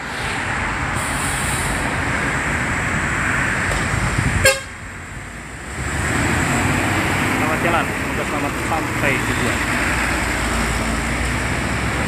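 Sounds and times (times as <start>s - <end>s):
tyres hissing on wet road: 0.0s - 4.6s, 5.3s - 12.0s
bus engine running: 0.0s - 12.0s
short horn blip: 4.4s - 4.7s.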